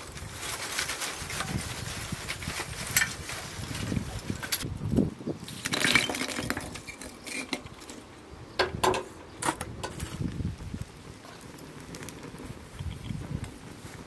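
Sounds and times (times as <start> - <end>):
charcoal lumps clinking on metal: 5.4 - 8.0.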